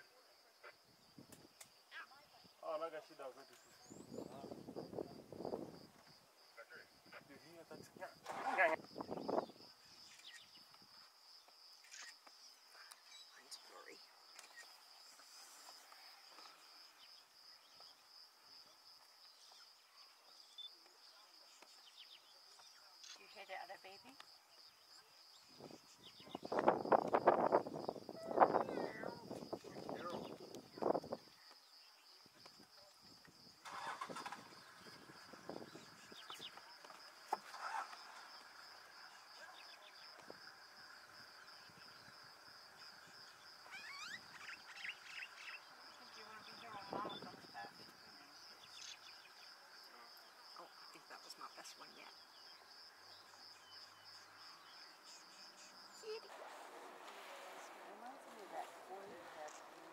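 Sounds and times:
high-pitched insect trill: 0:00.5 - 0:56.4
faint chirps: 0:09.0 - 0:27.2, 0:28.1 - 0:59.9
bird chirps: 0:09.4 - 0:10.7, 0:43.4 - 0:47.3.

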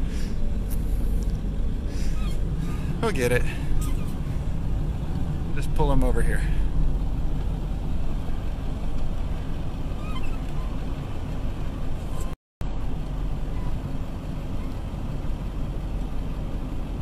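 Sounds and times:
truck engine rumbling: 0:00.0 - 0:17.0.

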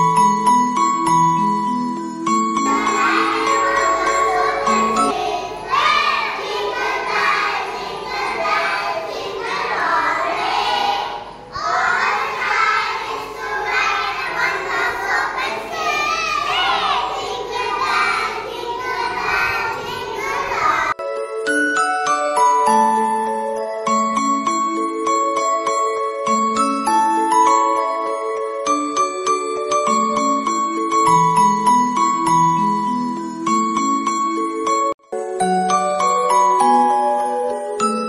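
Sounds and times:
bright chiming music: 0:00.0 - 0:08.5, 0:21.0 - 0:38.0
children singing in unison: 0:02.7 - 0:21.0.

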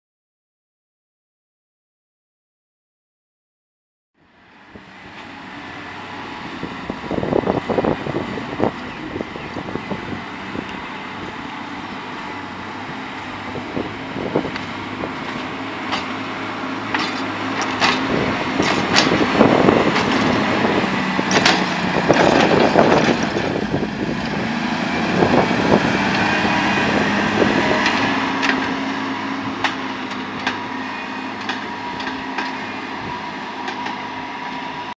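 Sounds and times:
diesel engine working: 0:04.2 - 0:35.0
sharp clicks and knocks: 0:21.3 - 0:23.4.

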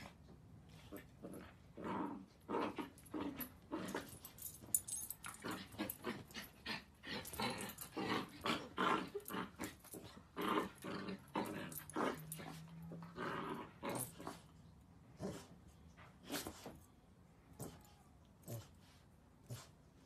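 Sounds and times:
puppy growling and yapping: 0:00.8 - 0:14.5.

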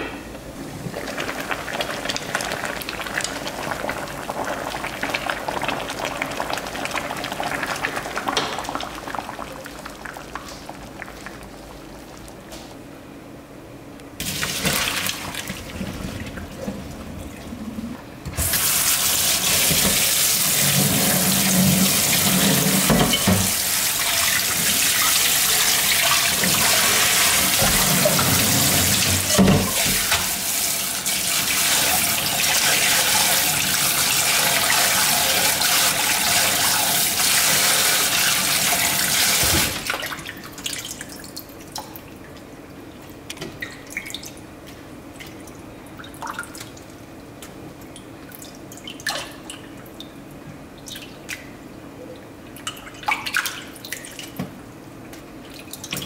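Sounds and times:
water dripping and splashing: 0:45.1 - 0:56.0.

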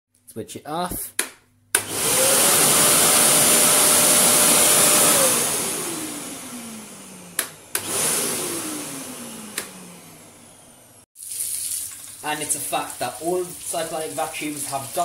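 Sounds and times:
vacuum motor running: 0:01.8 - 0:11.1.

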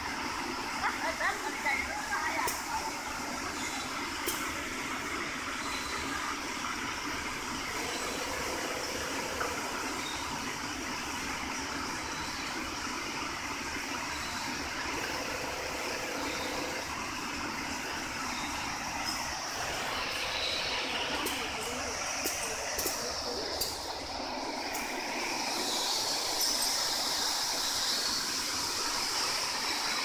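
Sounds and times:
whirring machinery: 0:00.0 - 0:30.0
faint hum: 0:14.1 - 0:29.7.

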